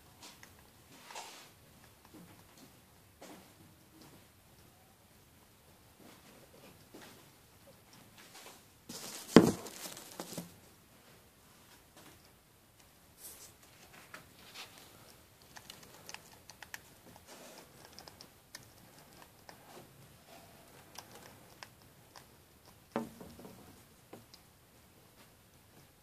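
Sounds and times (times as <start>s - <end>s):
hedgehog crunching kibble: 13.7s - 19.8s, 20.6s - 23.0s.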